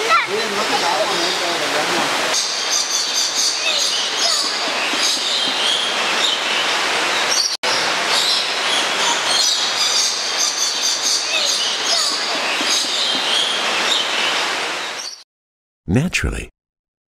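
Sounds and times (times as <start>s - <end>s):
birds chirping and squeaking: 2.4s - 7.6s, 8.2s - 15.2s.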